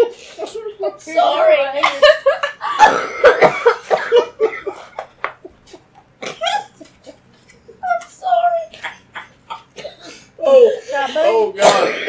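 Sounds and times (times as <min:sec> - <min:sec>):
people laughing hard: 0:01.8 - 0:10.4
people coughing: 0:02.6 - 0:05.1, 0:06.2 - 0:06.9, 0:08.8 - 0:10.3, 0:11.6 - 0:12.0.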